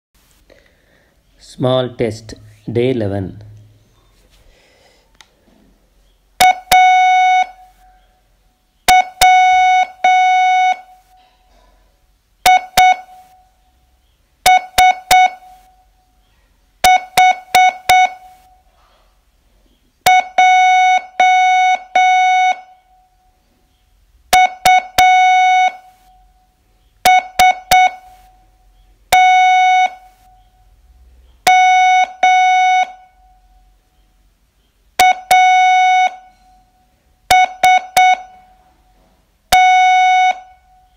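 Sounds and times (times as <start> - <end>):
morse code beeps: 6.4 - 7.8, 8.9 - 11.2, 12.4 - 13.4, 14.4 - 15.8, 16.8 - 18.5, 20.0 - 22.9, 24.3 - 26.3, 27.0 - 28.5, 29.1 - 30.6, 31.4 - 33.4, 35.0 - 36.6, 37.3 - 38.6, 39.5 - 40.9.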